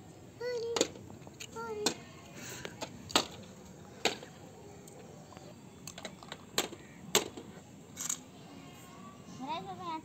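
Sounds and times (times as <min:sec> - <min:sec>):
plastic toys clicking: 0:05.8 - 0:07.4.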